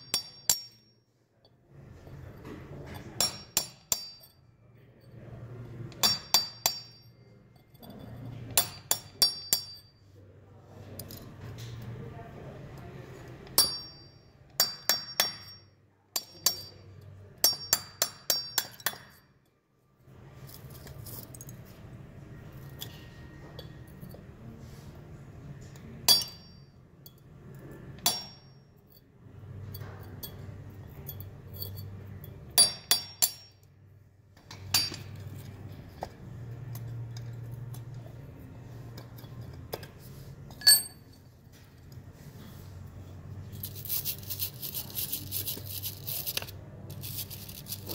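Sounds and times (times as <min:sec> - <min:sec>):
hammer striking steel chisel: 0:00.0 - 0:01.0, 0:03.0 - 0:04.4, 0:05.9 - 0:07.2, 0:08.5 - 0:10.0, 0:13.4 - 0:19.3, 0:26.1 - 0:26.8, 0:28.0 - 0:28.7, 0:32.5 - 0:33.7, 0:34.5 - 0:35.3.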